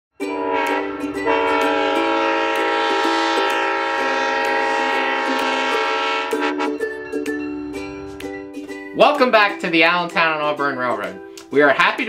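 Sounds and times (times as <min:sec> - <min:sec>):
locomotive air horn blast: 0:00.3 - 0:06.8.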